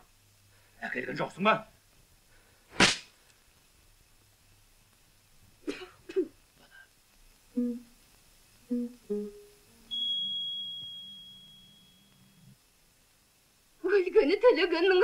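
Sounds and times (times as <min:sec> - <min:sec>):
sharp loud burst: 0:02.7 - 0:03.1.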